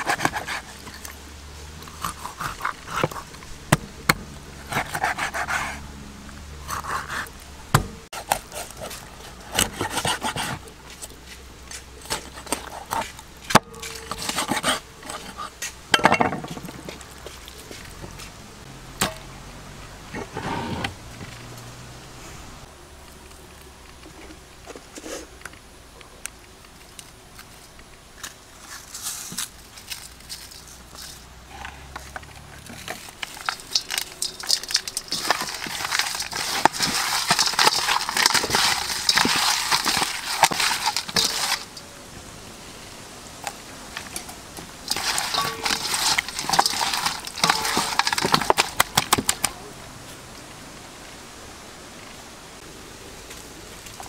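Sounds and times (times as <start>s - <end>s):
wet squishing of hand mixing: 32.0s - 41.9s, 44.2s - 49.5s.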